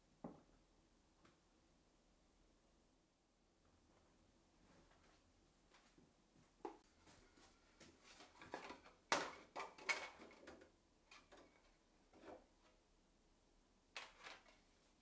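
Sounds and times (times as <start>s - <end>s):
plastic sheets rustling: 7.9s - 11.7s.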